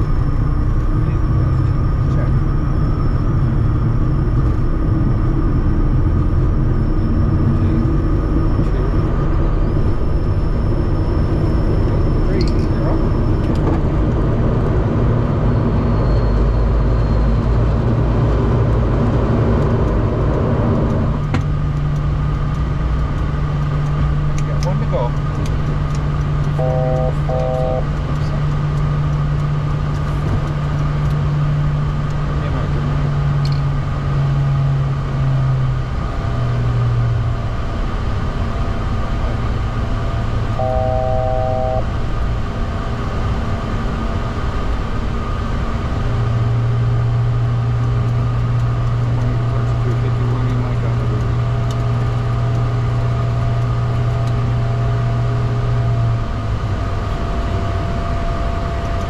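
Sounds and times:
jet engines and airflow in cockpit: 0:00.0 - 0:59.0
electronic multi-tone chime: 0:26.6 - 0:27.8, 0:40.6 - 0:41.9.

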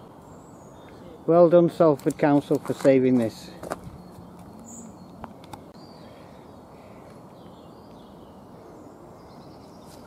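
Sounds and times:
faint birdsong chirping: 0:00.0 - 0:10.0.

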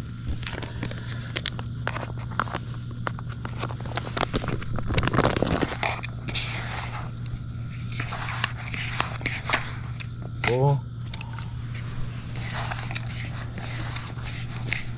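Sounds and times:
steady low hum: 0:00.0 - 0:14.9.

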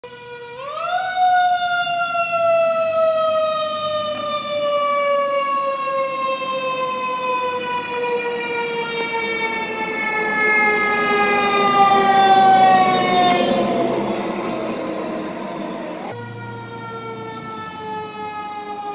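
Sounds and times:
fire engine siren: 0:00.0 - 0:18.9.

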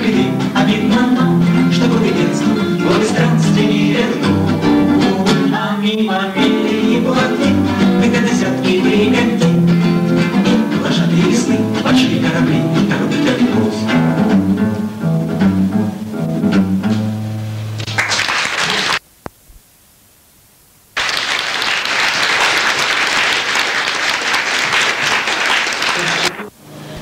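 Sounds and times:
acoustic guitars playing: 0:00.0 - 0:19.0
audience applause: 0:17.8 - 0:19.0, 0:21.0 - 0:26.5.

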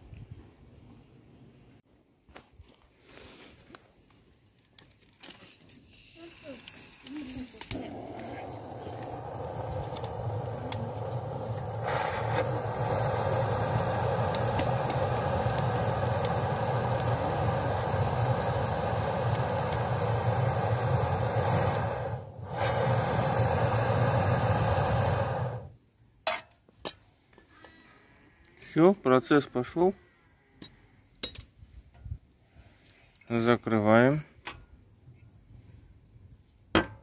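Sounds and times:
flame roaring: 0:06.1 - 0:25.8
low hum: 0:07.6 - 0:25.7.

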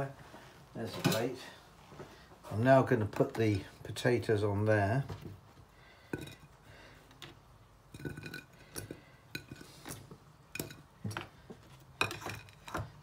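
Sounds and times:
potato pieces set on plate: 0:11.9 - 0:13.0.

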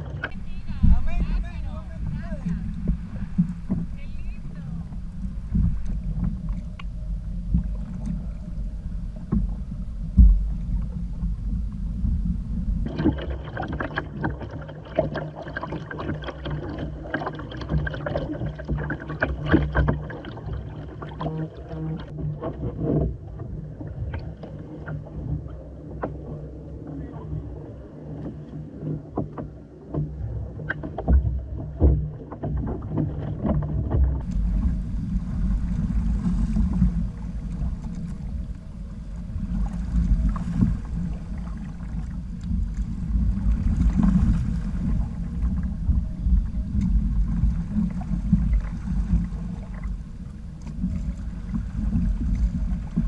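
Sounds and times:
wind on microphone: 0:00.0 - 0:14.4, 0:30.3 - 0:53.0
water lapping against hull: 0:00.0 - 0:53.0
water running along hull: 0:00.0 - 0:53.0.

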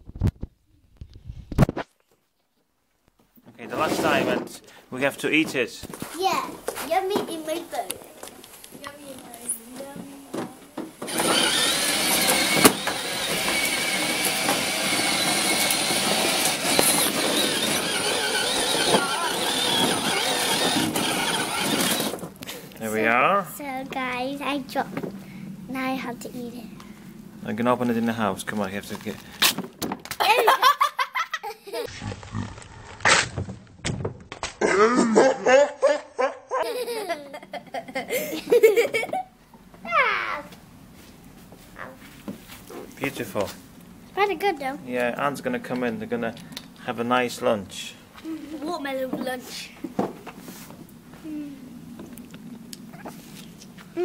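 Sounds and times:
plastic wheels rolling on stone: 0:06.9 - 0:22.4, 0:31.9 - 0:34.6
electric motor whining: 0:11.0 - 0:22.2
harsh burst of noise: 0:11.1 - 0:22.2
girl laughing: 0:30.2 - 0:32.0, 0:34.6 - 0:39.4, 0:48.2 - 0:48.7.

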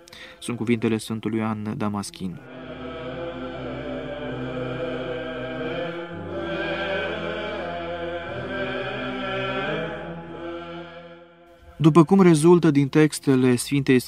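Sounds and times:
slow chanted music: 0:00.0 - 0:13.0
low held drone: 0:02.4 - 0:12.4.

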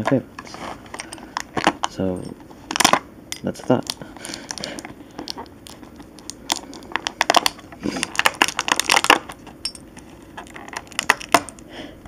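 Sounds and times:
plastic packaging crackling: 0:03.7 - 0:11.6.

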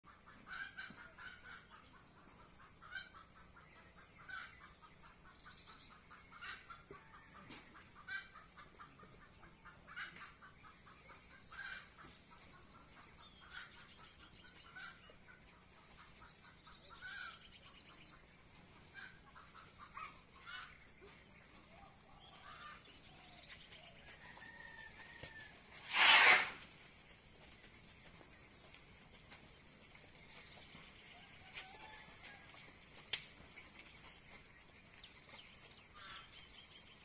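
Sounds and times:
chickens clucking: 0:00.1 - 0:25.7, 0:27.2 - 0:37.0
faint high hiss: 0:25.7 - 0:26.7.

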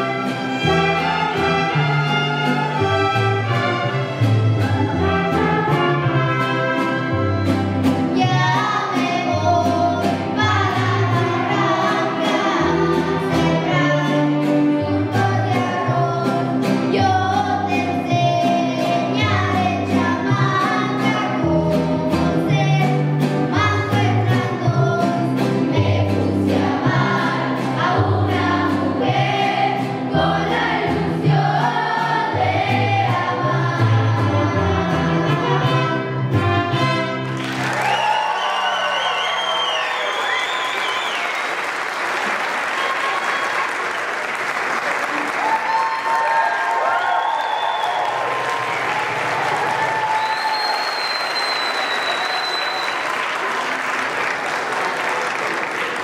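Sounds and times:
violins: 0:00.0 - 0:17.7
strummed guitars: 0:00.0 - 0:37.9
girl and boy singing a duet: 0:08.1 - 0:35.6.

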